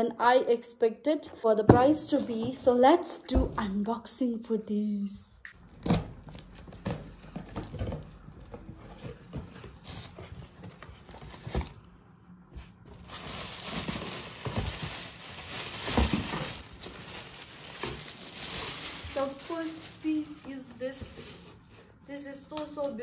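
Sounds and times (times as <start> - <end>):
plastic wrapping rustling: 5.6 - 11.9, 12.6 - 21.7.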